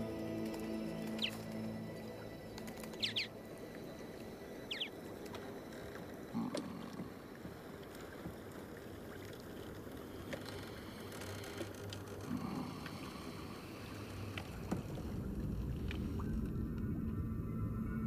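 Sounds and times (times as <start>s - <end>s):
water around boat: 0.0s - 18.0s
high falling chirps: 2.9s - 3.4s, 4.4s - 5.0s.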